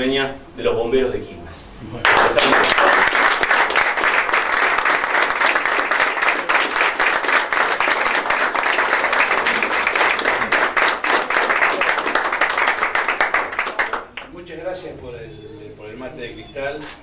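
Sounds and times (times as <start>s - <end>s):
audience applauding: 2.0s - 14.3s.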